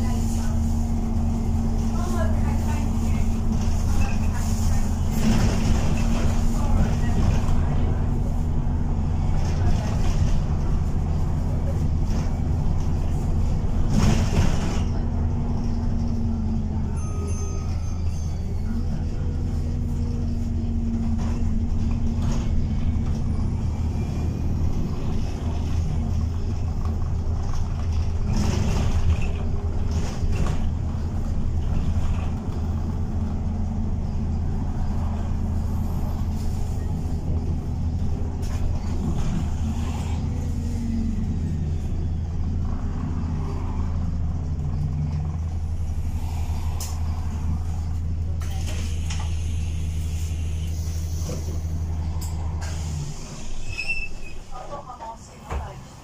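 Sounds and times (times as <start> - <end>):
bus engine and road drone: 0.0 - 56.0
knocks and rattles from bus body: 1.0 - 16.9, 19.5 - 35.6, 36.2 - 40.1, 42.4 - 45.6, 54.5 - 56.0.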